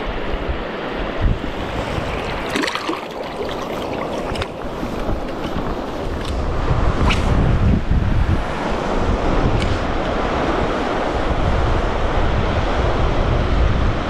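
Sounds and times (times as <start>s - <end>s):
wind buffeting microphone: 0.0s - 14.0s
water lapping: 1.4s - 7.3s.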